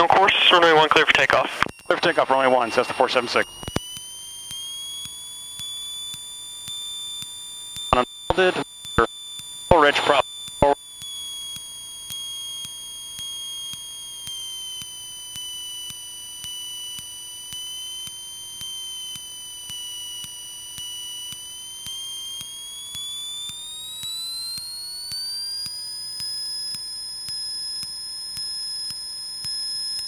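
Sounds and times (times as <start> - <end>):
airplane engine high whine: 0.0 - 3.7.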